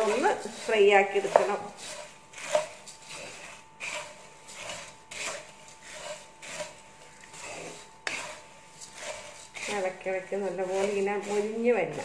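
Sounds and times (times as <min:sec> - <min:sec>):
spatula scraping rice flakes in wok: 0:00.0 - 0:12.0.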